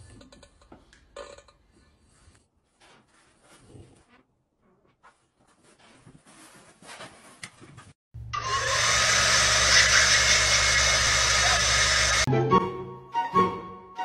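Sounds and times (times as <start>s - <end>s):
vacuum cleaner running: 8.4s - 12.3s.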